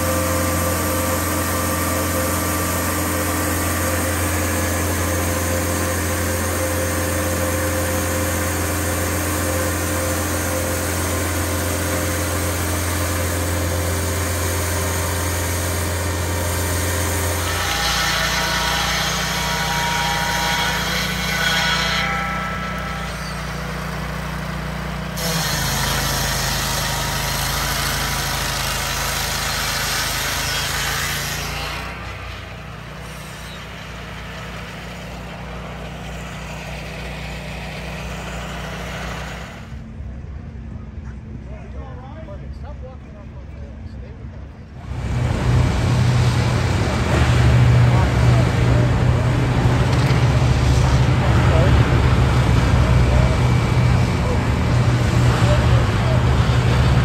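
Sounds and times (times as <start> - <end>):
chainsaw cutting a log: 0.0 - 39.7
sawmill engine running: 0.0 - 40.6, 44.8 - 57.0.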